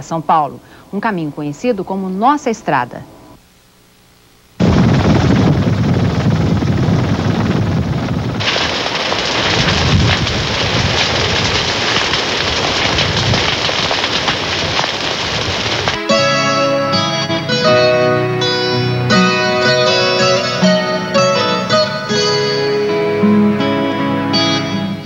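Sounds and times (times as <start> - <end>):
faint hum: 0.0 - 8.4
fire crackling and popping: 4.6 - 17.3.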